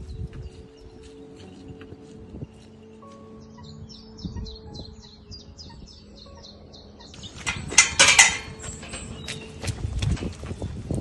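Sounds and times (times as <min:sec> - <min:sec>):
small bird singing: 0:00.0 - 0:11.0
loud rustling and clattering: 0:07.2 - 0:11.0.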